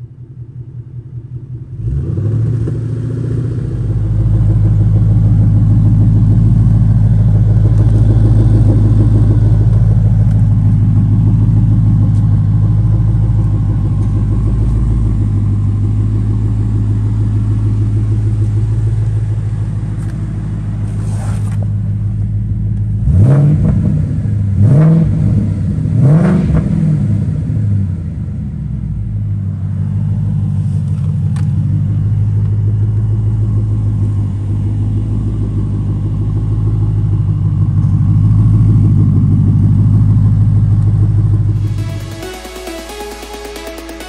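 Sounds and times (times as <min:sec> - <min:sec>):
engine low rumble: 0:00.0 - 0:44.0
car engine revving: 0:01.7 - 0:28.2, 0:38.1 - 0:44.0.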